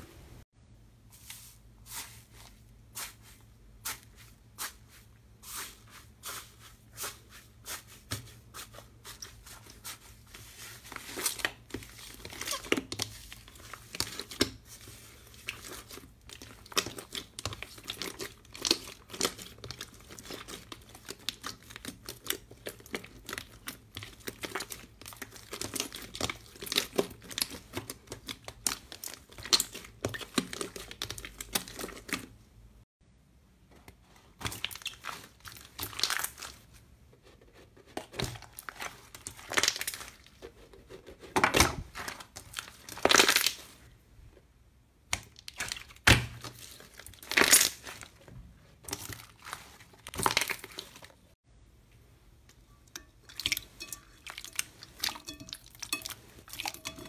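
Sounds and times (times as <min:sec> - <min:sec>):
slime squishing and crackling: 0:09.2 - 0:32.4, 0:34.4 - 0:36.7, 0:38.1 - 0:40.4, 0:41.5 - 0:43.8, 0:45.1 - 0:51.4.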